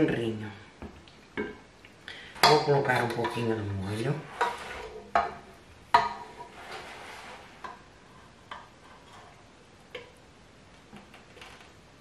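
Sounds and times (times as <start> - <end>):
spoon scraping and knocking pot: 2.4 - 10.2.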